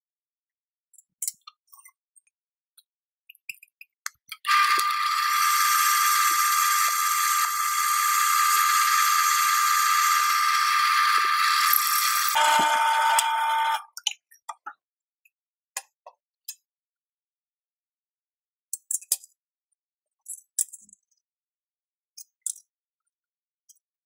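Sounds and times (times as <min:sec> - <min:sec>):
drill press cutting steel: 0:04.5 - 0:13.8.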